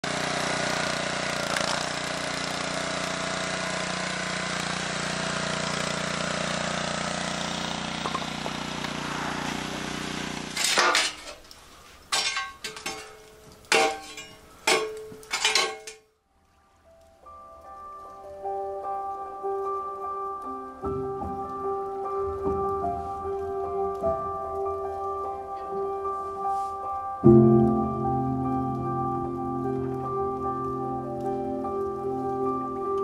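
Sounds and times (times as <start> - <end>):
small gasoline engine running: 0.0 - 10.8.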